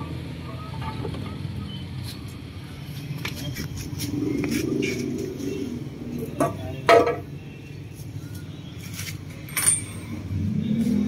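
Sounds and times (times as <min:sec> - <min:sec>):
metal tools clinking: 0:09.4 - 0:10.3
ringing metallic clink: 0:09.5 - 0:10.3.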